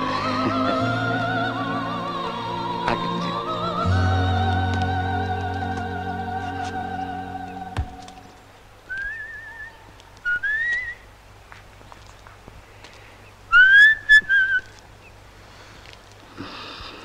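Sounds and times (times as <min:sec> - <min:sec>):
man whistling a tune: 0:08.9 - 0:09.7.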